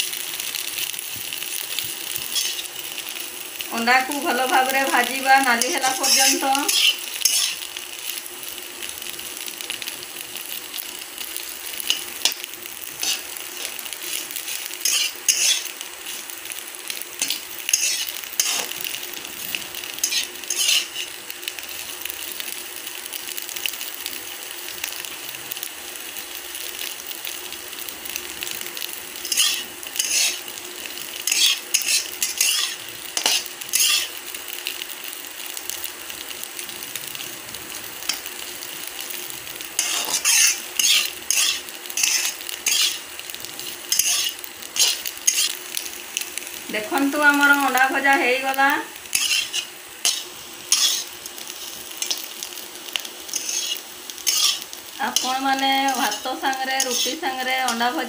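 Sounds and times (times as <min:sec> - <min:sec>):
eggs sizzling in oil: 0:00.0 - 0:58.0
spatula scraping pan: 0:02.2 - 0:02.7, 0:05.5 - 0:07.6, 0:11.8 - 0:16.3, 0:17.2 - 0:18.8, 0:20.0 - 0:21.2, 0:29.2 - 0:30.4, 0:31.2 - 0:34.2, 0:39.8 - 0:43.0, 0:43.9 - 0:45.6, 0:49.1 - 0:52.2, 0:53.3 - 0:58.0.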